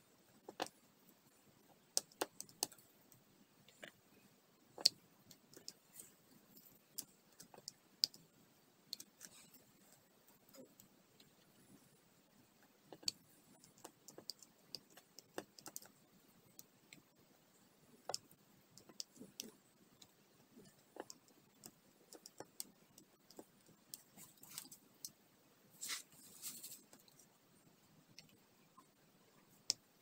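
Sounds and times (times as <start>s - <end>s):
small clicks and taps: 0.4s - 0.8s, 1.6s - 4.0s, 4.7s - 11.8s, 12.6s - 17.2s, 17.9s - 25.2s, 28.1s - 29.9s
short rustle: 25.8s - 26.9s.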